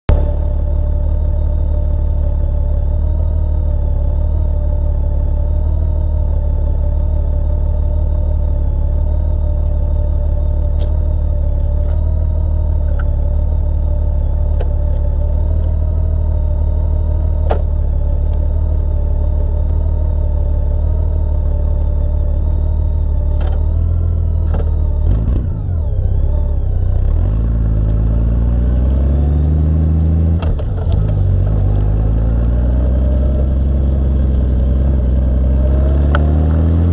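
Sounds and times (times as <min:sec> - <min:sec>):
motorcycle engine idling and revving: 0:00.0 - 0:36.9.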